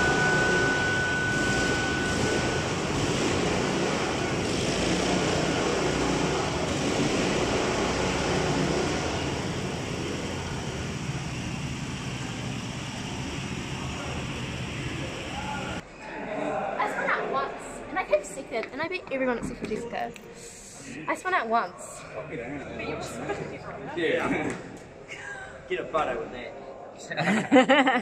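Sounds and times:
drift carts droning: 0.0 - 15.8.

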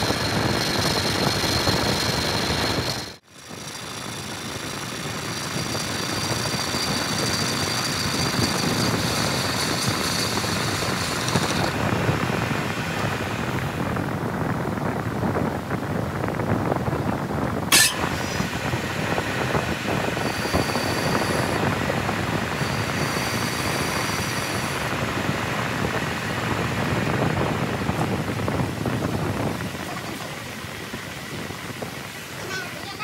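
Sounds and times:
metal lathe running: 0.0 - 11.9, 17.7 - 27.1.

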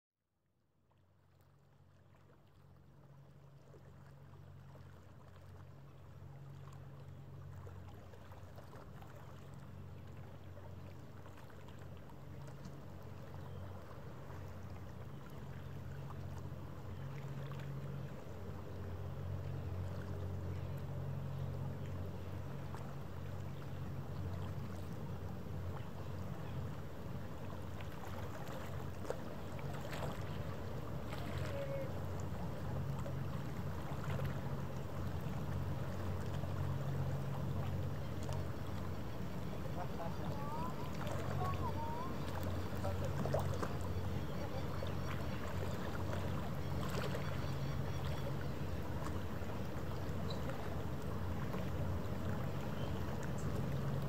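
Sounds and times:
ship engines droning: 12.0 - 54.0.

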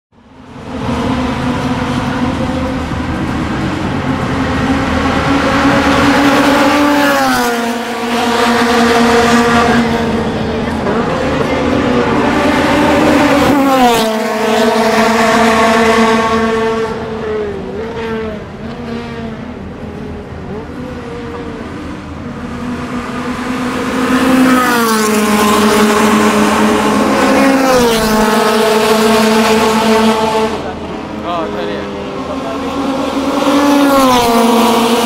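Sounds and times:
car engine passing at high revs: 0.2 - 35.0.

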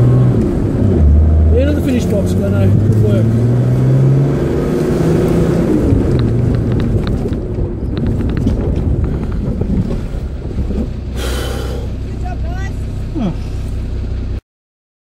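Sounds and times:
truck engine and road rumble: 0.0 - 14.4
wind buffeting microphone: 4.7 - 11.5
vehicle body rattles and knocks: 5.9 - 11.2.

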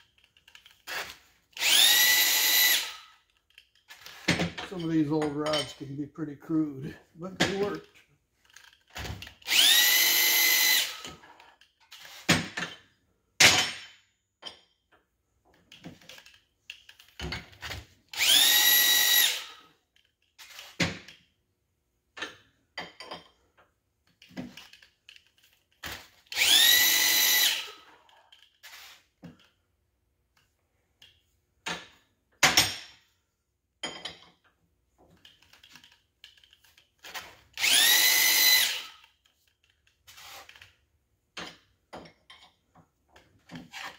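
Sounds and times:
electric drill motor whine: 1.6 - 3.0, 9.4 - 11.2, 18.1 - 19.6, 26.3 - 27.8, 37.6 - 39.0.

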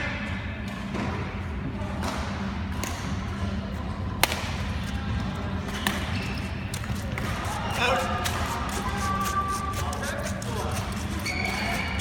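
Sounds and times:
low hum of hall: 0.0 - 12.0
rackets hitting shuttlecock: 4.2 - 5.0, 5.7 - 8.8.

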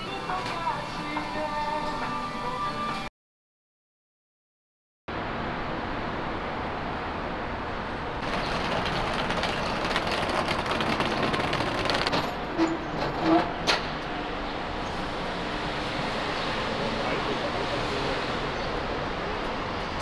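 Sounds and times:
traffic noise: 5.1 - 20.0.

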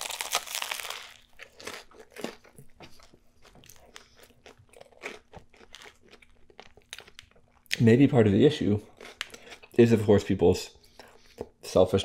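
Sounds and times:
crunchy sandwich bite: 0.0 - 2.6, 3.7 - 7.2
person chewing: 0.0 - 7.8, 8.8 - 9.8.

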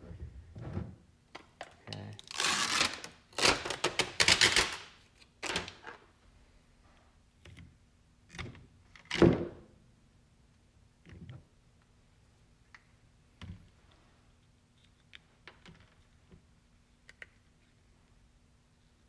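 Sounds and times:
tape ripping off: 2.2 - 5.8.

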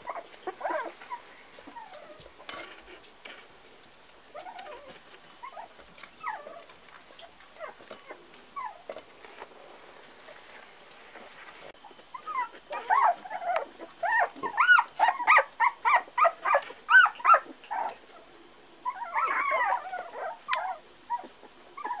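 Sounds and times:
puppies yipping and whining: 0.0 - 2.8, 4.3 - 9.1, 11.8 - 18.0, 18.8 - 22.0.

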